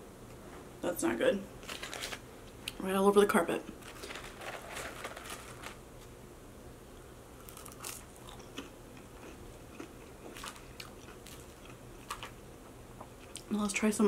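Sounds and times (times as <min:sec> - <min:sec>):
person chewing fries: 0:07.4 - 0:13.5.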